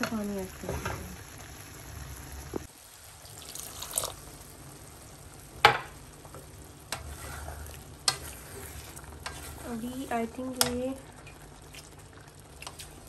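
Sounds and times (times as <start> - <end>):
low sizzling: 0.0 - 13.0
spatula stirring in a pan: 6.2 - 13.0
spatula knocking pan: 10.5 - 10.8.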